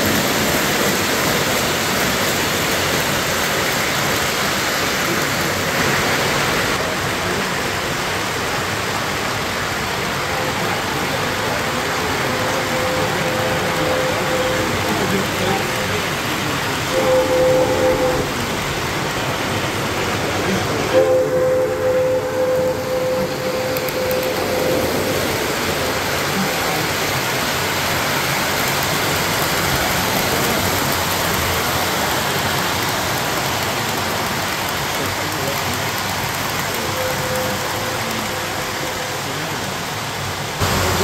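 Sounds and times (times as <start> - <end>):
model trains rolling on track: 0.0 - 41.0
model train horn: 12.0 - 16.1, 16.8 - 18.6, 20.9 - 25.4, 36.7 - 39.5.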